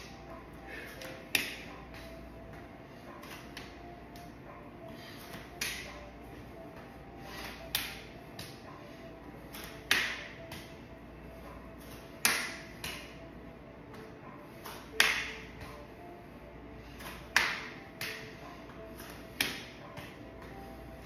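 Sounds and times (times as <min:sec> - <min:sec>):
hand slapping bare leg: 0:01.0 - 0:02.1, 0:05.3 - 0:06.0, 0:07.4 - 0:08.6, 0:09.5 - 0:10.8, 0:11.9 - 0:13.2, 0:13.9 - 0:15.8, 0:17.0 - 0:18.3, 0:19.0 - 0:20.2.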